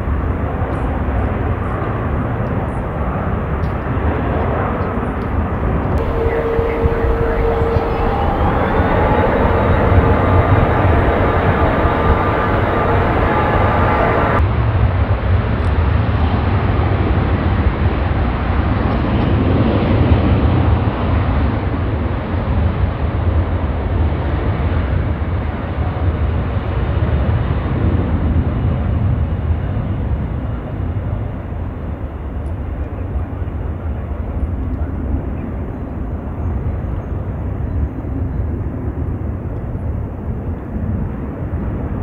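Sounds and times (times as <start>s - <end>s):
jet airliner engines roaring: 0.0s - 42.0s
high multi-tone whine: 5.9s - 14.4s.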